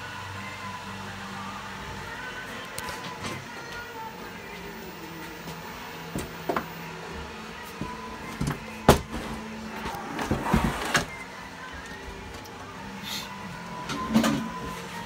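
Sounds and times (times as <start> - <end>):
equipment knocking on workbench: 8.4 - 9.2.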